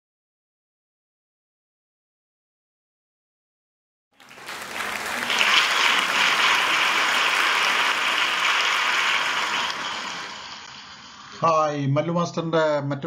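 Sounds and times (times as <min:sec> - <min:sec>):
crowd applause: 0:04.2 - 0:11.2.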